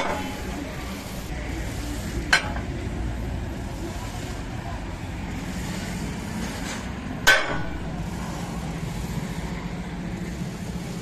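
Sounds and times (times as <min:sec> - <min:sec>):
low engine hum: 0:00.0 - 0:11.0
sledgehammer clang on steel: 0:07.3 - 0:07.8.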